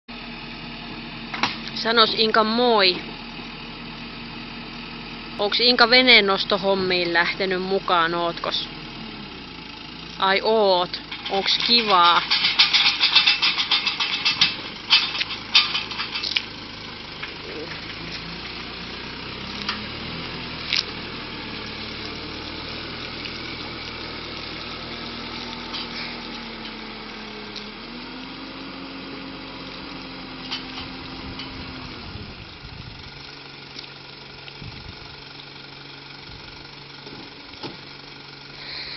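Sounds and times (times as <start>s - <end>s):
tow truck engine: 0.1s - 38.9s
sharp metal clanks: 11.0s - 16.5s.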